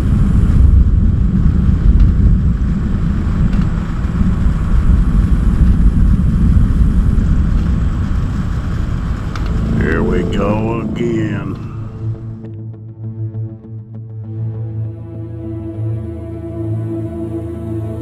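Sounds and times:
storm wind buffeting microphone: 0.0s - 12.3s.

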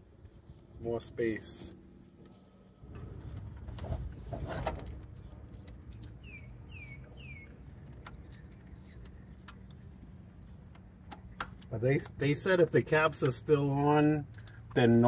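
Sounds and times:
bird chirps sliding downward: 6.2s - 7.6s.

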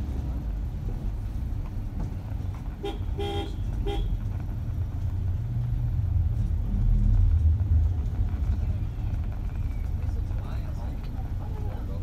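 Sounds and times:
low traffic rumble: 0.0s - 12.0s
vehicle horn beeps: 2.8s - 4.2s.

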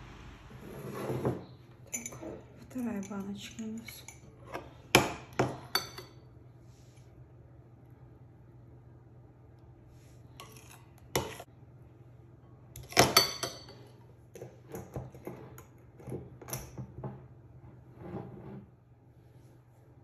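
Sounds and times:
metal spoon scraping glass: 1.9s - 2.4s.

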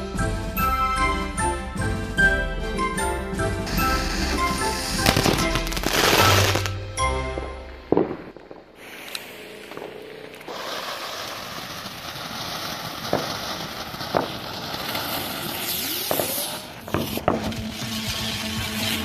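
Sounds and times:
firework fountain hissing: 3.6s - 6.8s, 7.4s - 19.0s
firework crackling: 3.6s - 19.0s
sharp pops: 3.7s - 6.8s.

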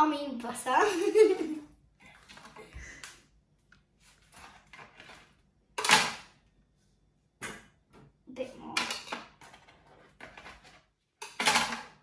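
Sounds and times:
sharp kitchen noise: 4.6s - 6.4s, 8.6s - 12.0s.

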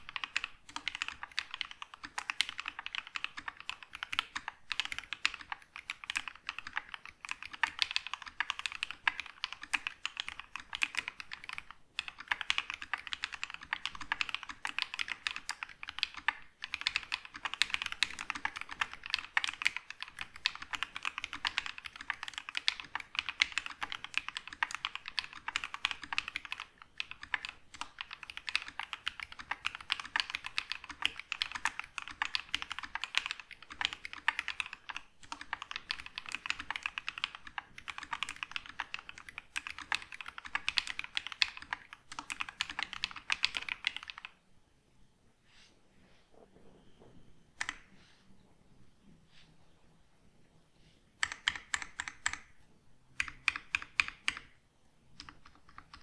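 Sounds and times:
fast mechanical keyboard typing: 0.0s - 44.4s, 51.2s - 52.5s, 53.1s - 54.6s, 55.2s - 56.0s.

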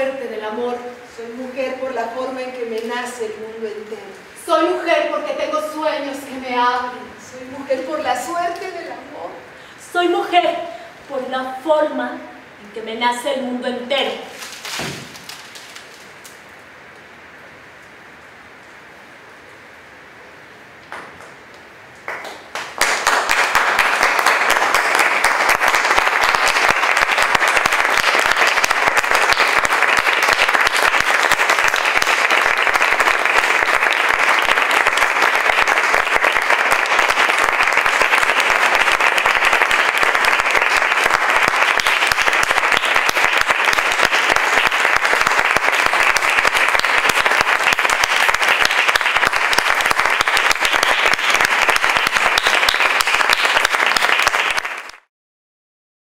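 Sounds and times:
audience applauding: 22.0s - 55.1s.

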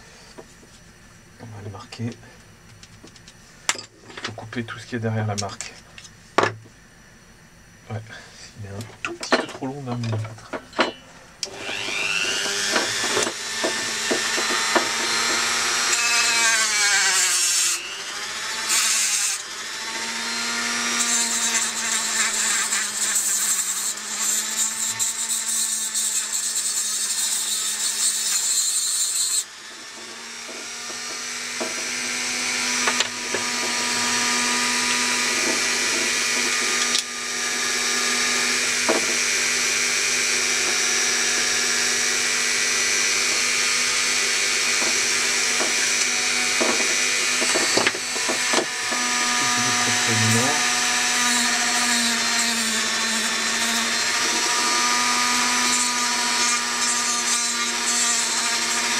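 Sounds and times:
rotary tool cutting metal: 10.8s - 58.9s.

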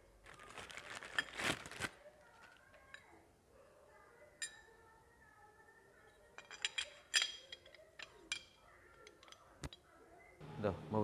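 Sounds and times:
light metallic clinks: 6.0s - 10.0s.

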